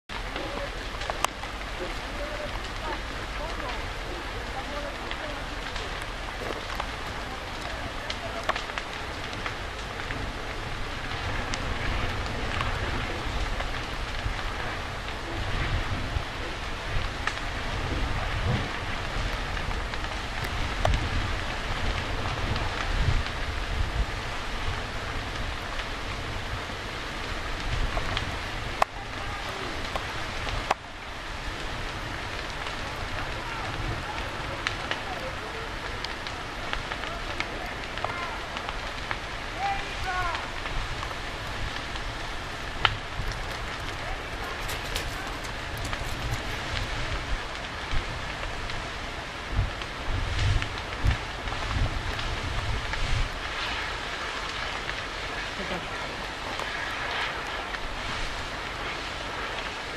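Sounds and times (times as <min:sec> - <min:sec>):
fire crackling and rushing: 0:00.0 - 0:59.9
low rumbling: 0:40.1 - 0:48.8.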